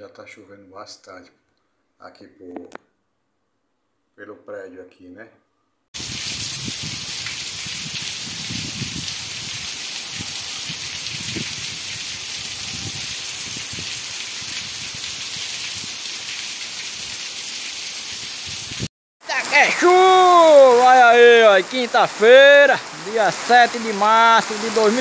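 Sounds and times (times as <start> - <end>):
steady rain hiss: 6.0 - 25.0.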